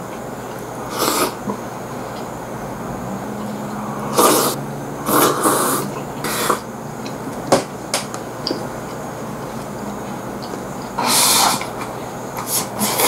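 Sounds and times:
slurps and sucking breaths: 0.9 - 1.5, 3.7 - 6.6, 10.9 - 13.0.

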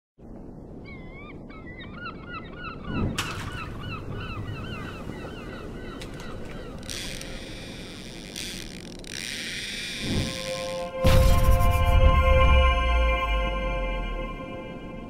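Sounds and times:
seagulls calling: 0.8 - 11.0
loud whoosh: 10.0 - 15.0.

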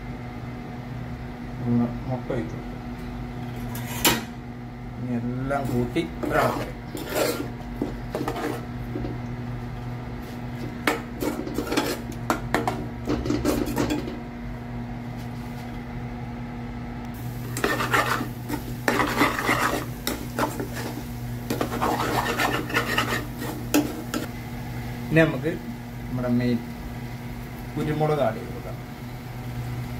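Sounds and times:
steady low hum: 0.0 - 29.9
metal spoon scraping saucepan: 5.6 - 8.7, 10.9 - 12.1, 17.4 - 24.3.

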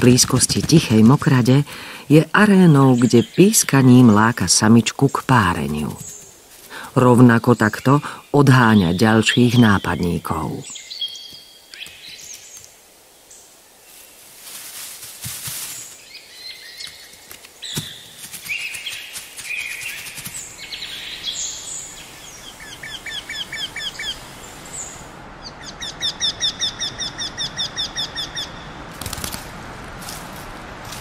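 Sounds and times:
birds calling and singing: 0.0 - 14.1, 15.5 - 29.3
rapid whistled bird notes: 15.7 - 25.0.

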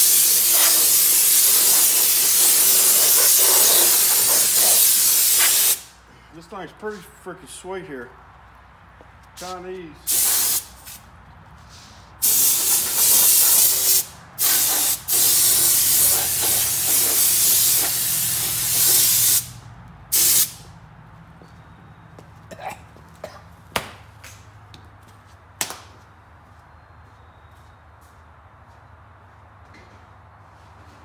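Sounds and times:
spray gun hissing: 0.0 - 6.0, 10.1 - 11.0, 12.2 - 20.6.

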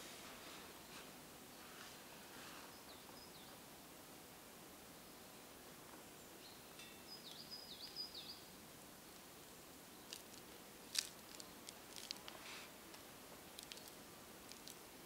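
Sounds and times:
soft rustle: 0.0 - 3.0, 10.0 - 15.0.

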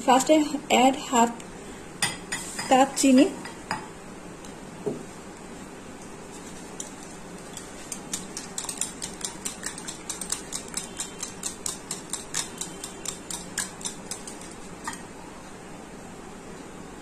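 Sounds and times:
whisk clicking against glass bowl: 6.8 - 15.0.

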